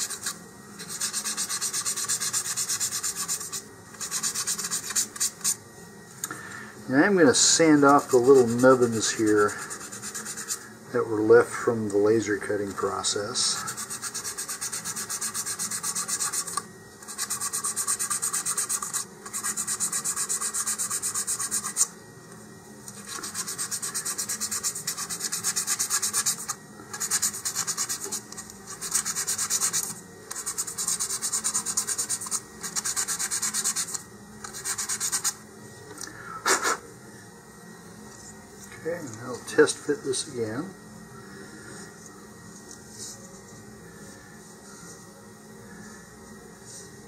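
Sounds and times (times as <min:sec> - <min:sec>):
sanding sponge rubbing cardboard: 0:00.0 - 0:05.6, 0:07.7 - 0:10.6, 0:13.6 - 0:21.9, 0:23.0 - 0:35.4.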